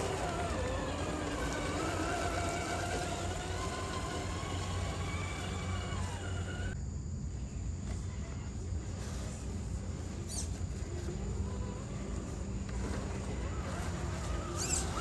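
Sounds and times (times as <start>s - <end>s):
electric motor whine: 0.0s - 6.8s, 11.0s - 15.0s.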